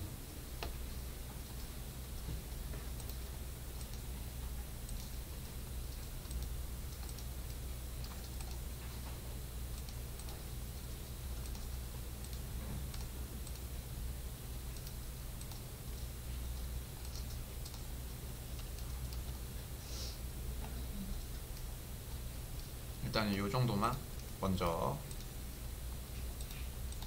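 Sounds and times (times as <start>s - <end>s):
steady low hum: 0.0s - 27.0s
mouse clicks: 3.8s - 4.1s, 9.7s - 10.4s, 11.4s - 13.7s, 14.7s - 15.6s.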